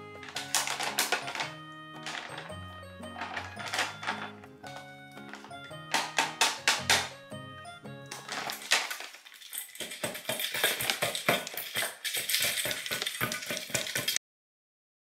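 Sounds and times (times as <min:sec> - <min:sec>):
dog crunching dry kibble: 0:00.0 - 0:02.5, 0:03.1 - 0:07.1, 0:08.1 - 0:14.2
music: 0:00.0 - 0:08.8.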